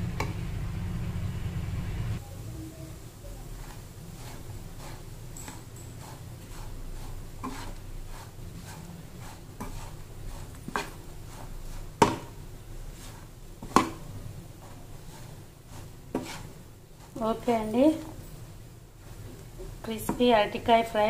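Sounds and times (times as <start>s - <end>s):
low steady hum: 0.0s - 21.0s
metal spatula scraping frying pan: 3.6s - 18.2s
spatula knocking on pan: 12.0s - 12.4s, 13.6s - 14.0s.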